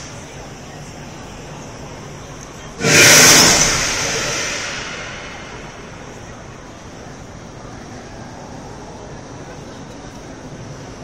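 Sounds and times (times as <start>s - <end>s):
fireball whoosh: 2.8s - 6.4s.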